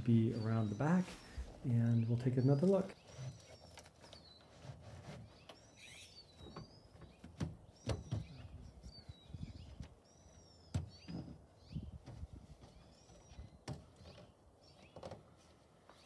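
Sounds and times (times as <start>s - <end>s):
small birds chirping: 0.0s - 16.0s
knocks and rustles of padding: 6.4s - 8.6s.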